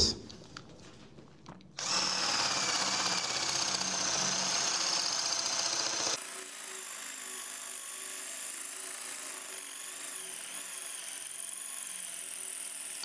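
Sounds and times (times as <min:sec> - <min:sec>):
drill boring into cement block: 0:01.8 - 0:13.0.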